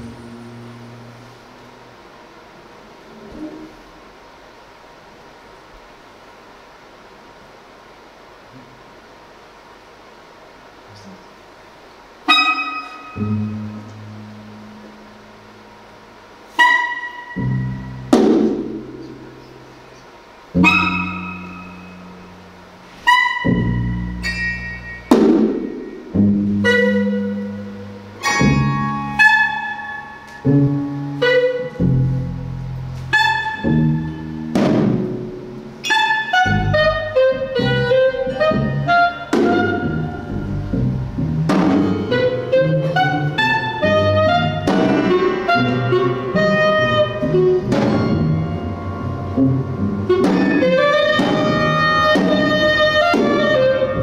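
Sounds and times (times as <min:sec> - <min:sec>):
clarinet: 0:00.0 - 0:02.2, 0:12.3 - 0:15.2, 0:16.5 - 0:18.1, 0:20.6 - 0:34.5, 0:35.8 - 0:54.0
double bass: 0:00.0 - 0:05.2, 0:10.9 - 0:54.0
piano: 0:12.3 - 0:54.0.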